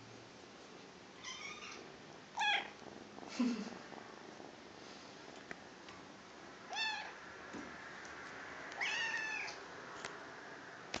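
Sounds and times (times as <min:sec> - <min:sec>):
kitten meowing: 0:02.4 - 0:02.7, 0:06.7 - 0:07.2, 0:08.8 - 0:09.6.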